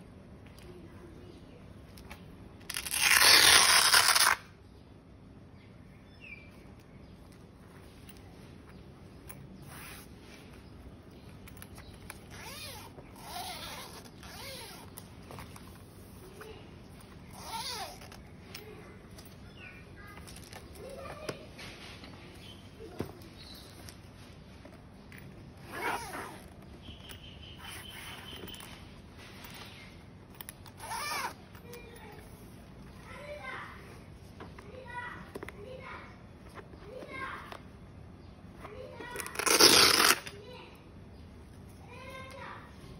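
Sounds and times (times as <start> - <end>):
zipper rasp on fabric bag: 9.6 - 10.4, 12.2 - 16.2, 17.3 - 18.2, 25.6 - 26.6, 27.6 - 28.6, 30.6 - 31.5, 39.2 - 40.3.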